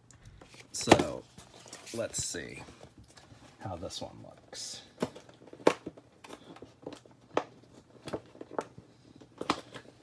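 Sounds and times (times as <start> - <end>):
plastic packaging clicks and taps: 5.0 - 10.0.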